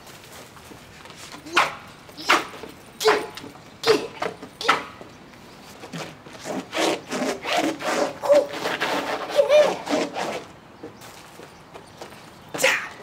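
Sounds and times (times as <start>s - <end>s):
person yelping: 1.4s - 5.0s, 9.3s - 9.8s.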